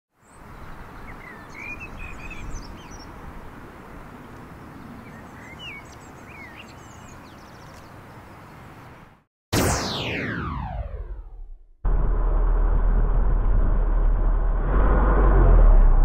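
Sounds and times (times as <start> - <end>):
small birds chirping: 0.2 - 9.1
low background rumble: 11.0 - 16.0.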